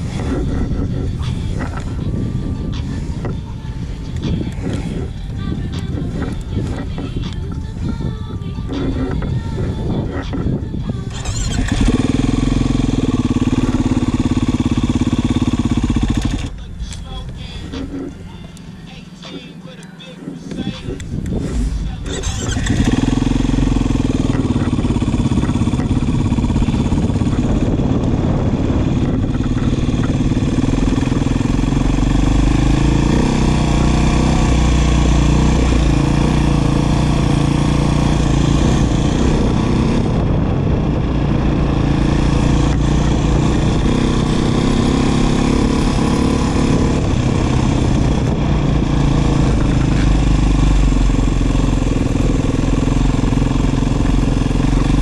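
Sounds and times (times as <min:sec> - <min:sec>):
dirt bike engine revving: 0:00.0 - 0:01.9, 0:11.1 - 0:16.6, 0:20.3 - 0:55.0.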